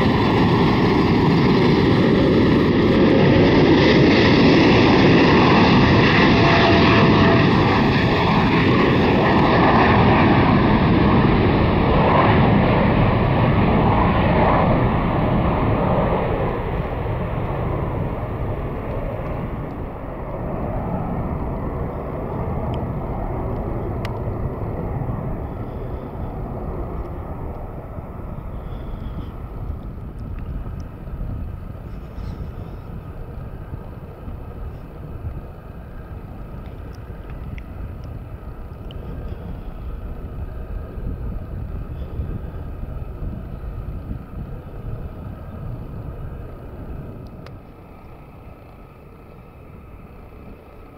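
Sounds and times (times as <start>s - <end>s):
jet engine rumble: 0.0s - 50.9s.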